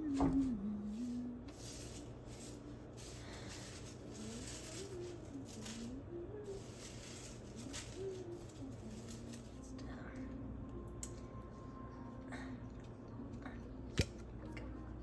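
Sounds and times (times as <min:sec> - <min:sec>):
paper and petals rustling: 0:00.0 - 0:09.8
faint slow low tune: 0:03.0 - 0:15.0.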